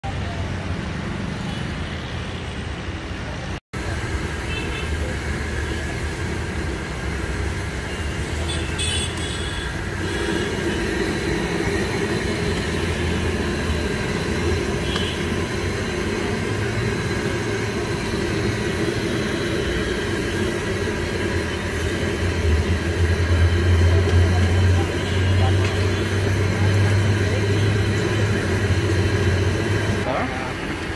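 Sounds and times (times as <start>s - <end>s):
street traffic rumble: 0.0s - 30.9s
food sizzling in hot oil: 3.8s - 30.1s.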